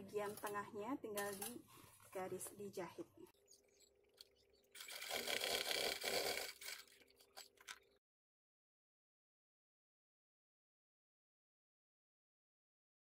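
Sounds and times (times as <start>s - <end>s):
sewing machine stitching leather: 4.8s - 7.0s.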